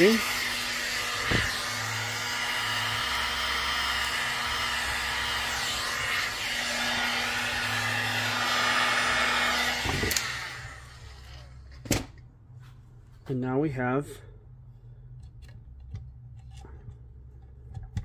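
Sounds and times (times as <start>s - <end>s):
heat gun blowing: 0.0s - 11.6s.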